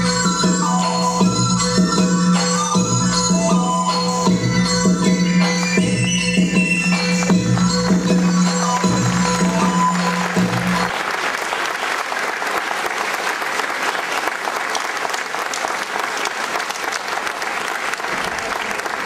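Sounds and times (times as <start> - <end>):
recorded dance music: 3.0 - 10.9
audience applause: 8.4 - 19.0.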